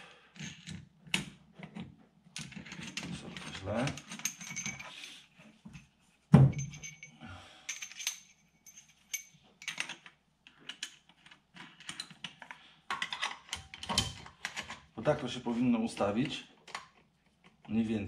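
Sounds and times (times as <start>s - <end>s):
light metallic clicks and clinks: 2.4s - 5.9s, 6.5s - 11.0s.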